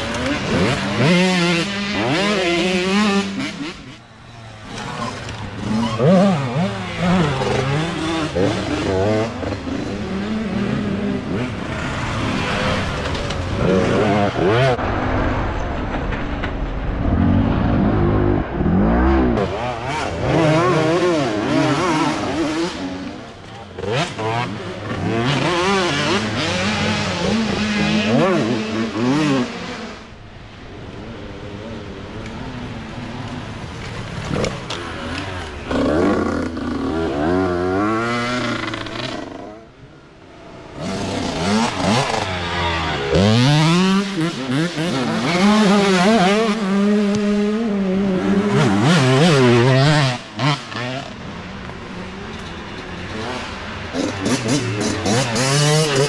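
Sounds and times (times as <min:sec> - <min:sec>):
dirt bike engines revving: 0:00.0 - 0:56.0.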